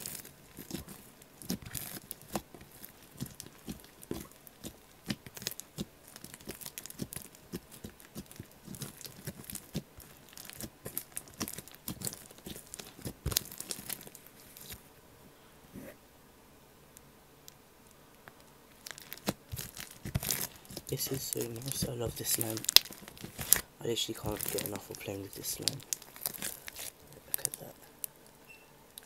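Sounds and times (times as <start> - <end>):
slime squishing with sticky clicks: 0.0 - 14.8, 18.8 - 29.0.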